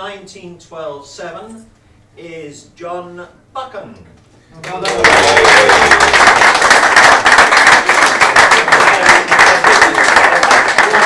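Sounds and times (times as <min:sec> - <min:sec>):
crowd applauding: 0:04.6 - 0:11.0.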